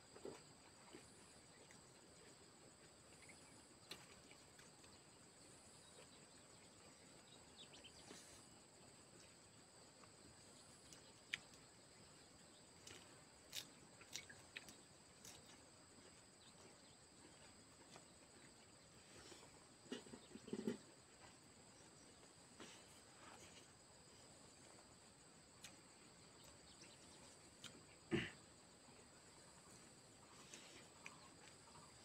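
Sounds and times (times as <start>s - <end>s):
smacking sounds of eating: 12.8s - 15.6s.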